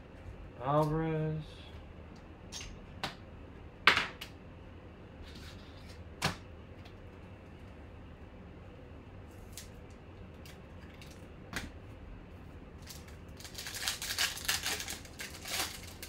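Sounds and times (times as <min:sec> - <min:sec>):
foil wrapper crinkling and tearing: 0:12.8 - 0:16.0.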